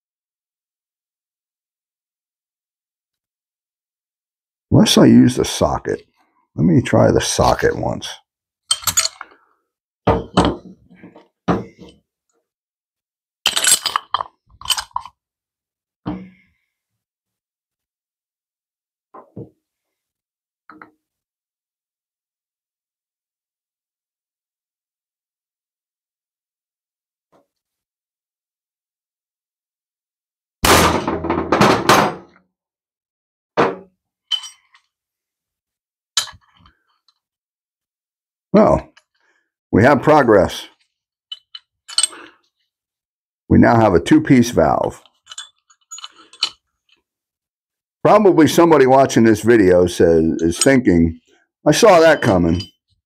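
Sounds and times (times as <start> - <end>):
metal clanks and clinks: 8.7 - 9.3, 34.3 - 34.9, 41.3 - 42.3, 45.0 - 46.6
metallic clink: 34.3 - 34.8, 41.3 - 42.3.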